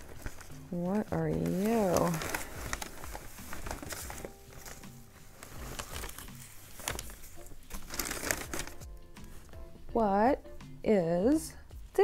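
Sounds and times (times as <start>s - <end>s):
packing paper rustling: 0.0s - 9.5s.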